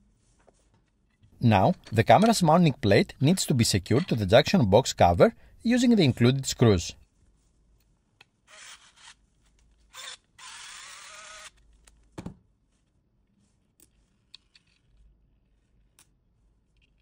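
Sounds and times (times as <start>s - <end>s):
electric screwdriver running: 9.9s - 11.6s.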